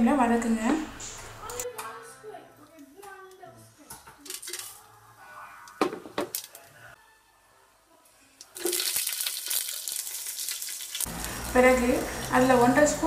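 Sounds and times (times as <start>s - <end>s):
ghee sizzling with crackles: 8.1s - 13.0s.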